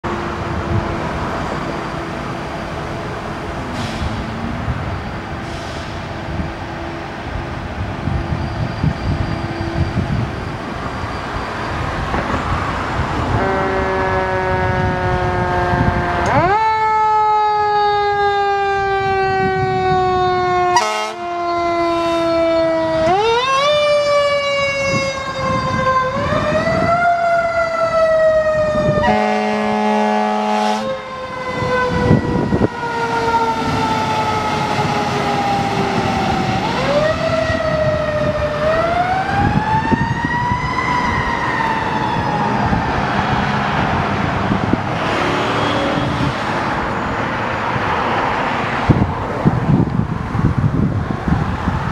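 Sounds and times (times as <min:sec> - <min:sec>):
traffic: 0:00.0 - 0:51.9
air horn blast: 0:13.3 - 0:16.4, 0:20.7 - 0:22.6, 0:29.0 - 0:31.0
truck engine passing: 0:40.5 - 0:49.8.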